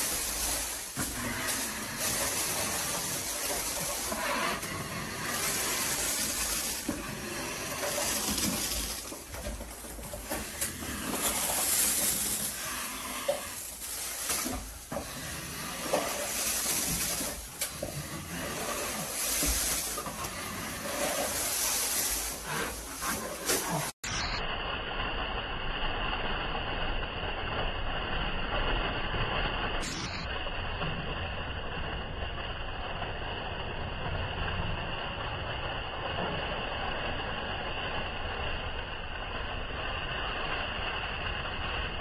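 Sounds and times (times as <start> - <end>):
knife scraping ceiling texture: 0.0 - 24.0.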